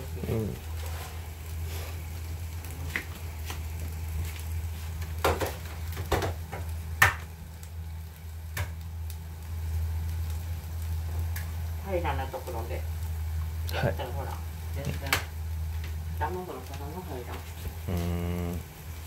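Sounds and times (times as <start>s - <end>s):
food sizzling in pan: 0.0s - 19.0s
steady low hum: 0.0s - 19.0s.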